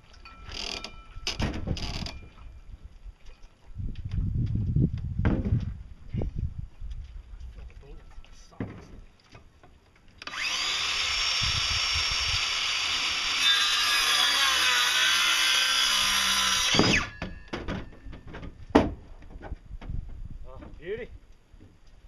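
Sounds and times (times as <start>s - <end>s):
circular saw cutting wood: 10.2s - 17.2s.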